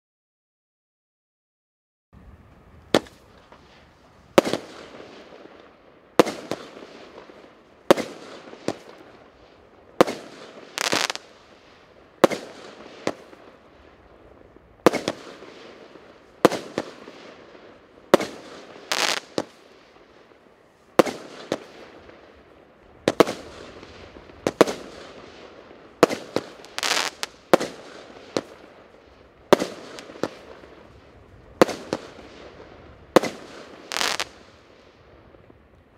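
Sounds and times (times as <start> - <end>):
firework battery bangs with hiss: 2.9 - 5.3, 6.2 - 7.3, 10.0 - 11.4, 12.2 - 13.4, 14.8 - 15.7, 18.1 - 20.0, 23.0 - 28.7, 31.5 - 34.6.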